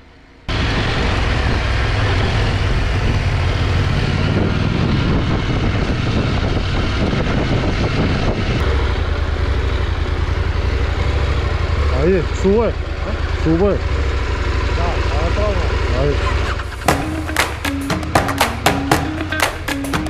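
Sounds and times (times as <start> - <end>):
motorcycle engine rumble: 0.1 - 20.0
wind noise: 0.5 - 8.7.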